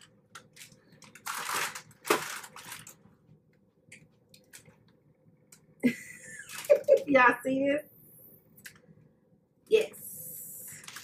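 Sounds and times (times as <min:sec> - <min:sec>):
plastic wrapping crinkling: 0:00.3 - 0:03.1, 0:06.3 - 0:07.1, 0:10.7 - 0:11.0.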